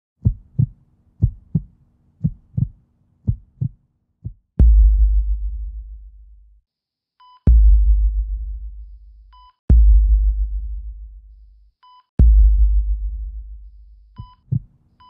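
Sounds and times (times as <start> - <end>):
heartbeat thumps: 0.2 - 6.4, 7.5 - 11.6, 12.2 - 14.7
heavy bass impact: 4.6 - 6.5, 7.5 - 11.6, 12.2 - 14.2.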